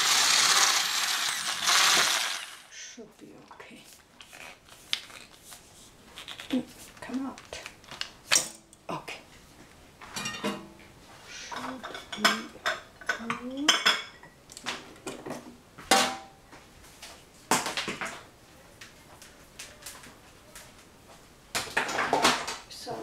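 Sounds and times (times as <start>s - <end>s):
dishes and cutlery clattering: 10.1s - 10.7s, 11.6s - 14.4s.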